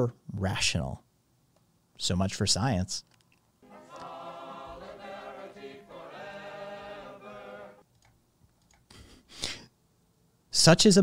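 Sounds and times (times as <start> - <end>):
choir singing: 3.6 - 7.8.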